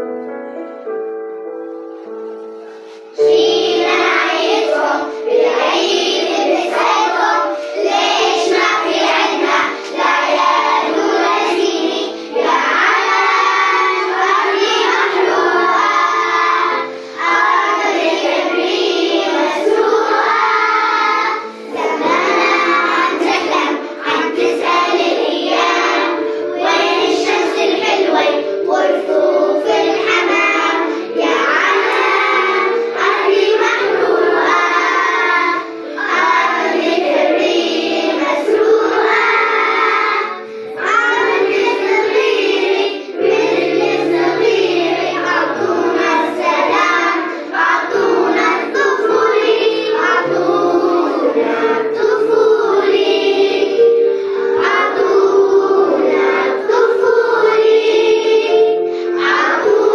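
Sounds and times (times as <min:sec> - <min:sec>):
instrumental backing: 0:00.0 - 0:59.9
children singing in chorus: 0:03.1 - 0:59.9.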